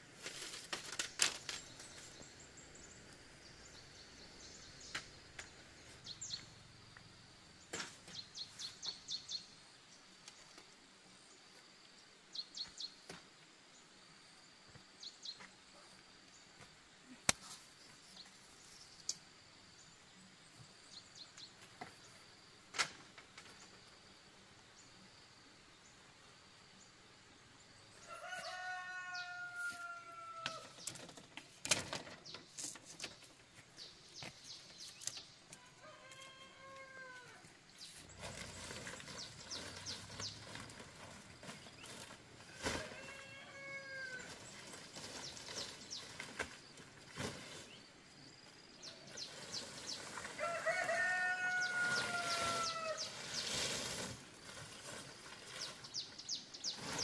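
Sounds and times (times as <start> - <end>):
rooster crowing: 28.0 - 30.6, 35.6 - 37.4, 50.3 - 53.1.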